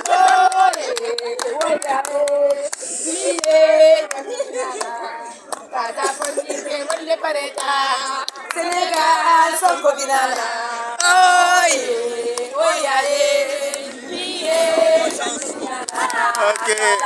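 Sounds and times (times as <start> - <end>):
hand claps: 0.0 - 9.8, 15.1 - 17.0
women singing and chanting: 0.0 - 17.0.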